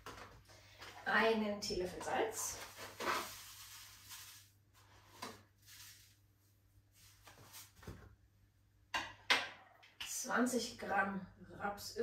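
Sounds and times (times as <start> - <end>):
salt shaken from carton: 2.6 - 4.6.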